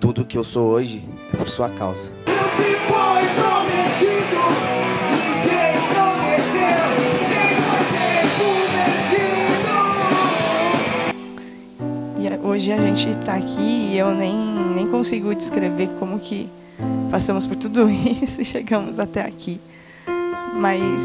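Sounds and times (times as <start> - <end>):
man singing: 2.3 - 11.1
rock band with guitar: 2.3 - 11.4.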